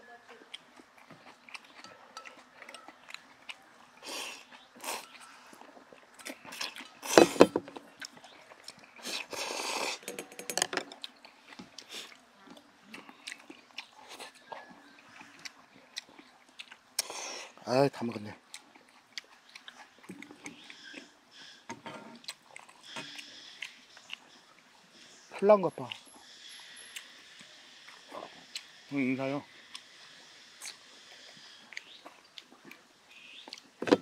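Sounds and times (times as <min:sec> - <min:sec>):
chewing: 0:00.1 - 0:34.0
people slurping noodles: 0:04.0 - 0:07.5, 0:08.9 - 0:10.3
chopsticks clicking on steel bowls: 0:10.0 - 0:10.9.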